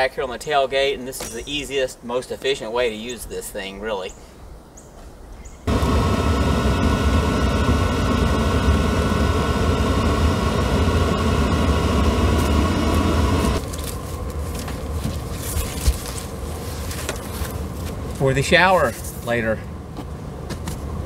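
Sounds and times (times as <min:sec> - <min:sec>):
air heater rumbling with fan whine: 0:05.7 - 0:21.0
rustling: 0:13.6 - 0:19.3.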